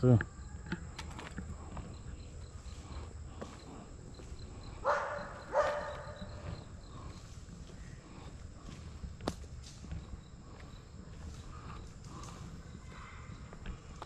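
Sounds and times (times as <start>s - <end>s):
dog barking: 4.8s - 6.4s.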